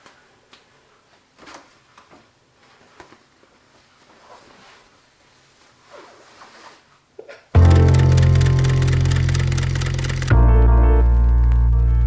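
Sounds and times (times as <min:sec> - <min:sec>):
small clicks: 0:07.6 - 0:10.4.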